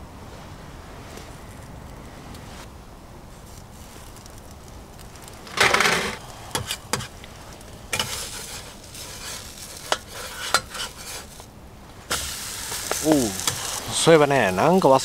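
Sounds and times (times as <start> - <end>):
pancake sizzling on griddle: 3.3 - 15.0
metal spatula scraping griddle: 5.5 - 7.2, 7.9 - 11.4, 12.1 - 14.6.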